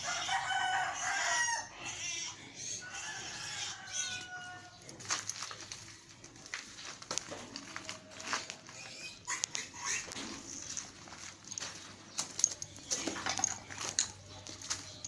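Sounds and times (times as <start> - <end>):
rooster crowing: 0.0 - 1.8, 2.8 - 4.8
chickens clucking: 7.2 - 15.0.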